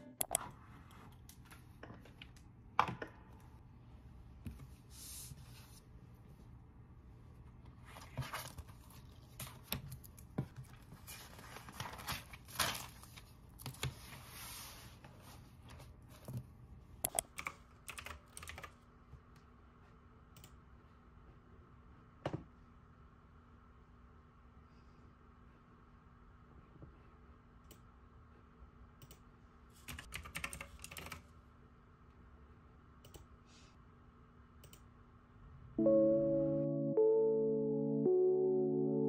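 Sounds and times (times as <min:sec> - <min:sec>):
papers being shuffled: 0:07.8 - 0:16.3
clicks and taps: 0:17.0 - 0:17.4.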